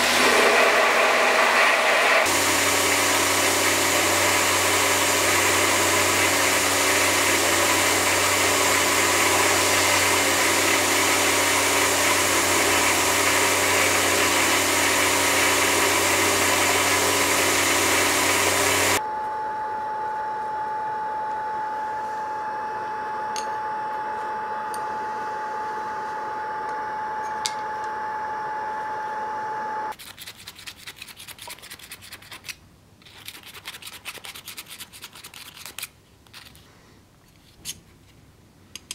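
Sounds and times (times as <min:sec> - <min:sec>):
quieter machine hum with tone: 0:02.3 - 0:30.0.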